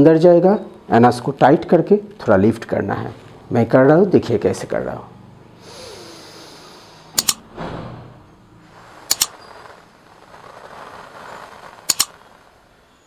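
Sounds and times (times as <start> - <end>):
slow deep breaths: 5.6 - 7.2
mouse double clicks: 7.2 - 7.4, 9.1 - 9.3, 11.9 - 12.1.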